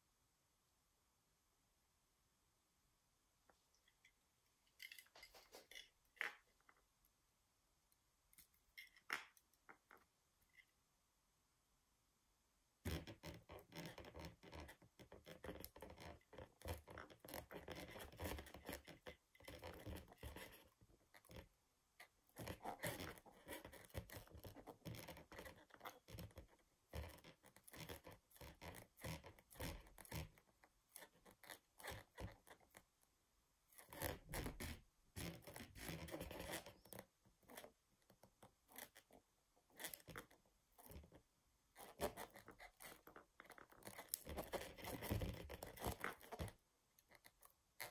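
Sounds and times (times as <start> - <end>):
rubber balloon scraping: 33.7 - 37.7, 41.8 - 46.6.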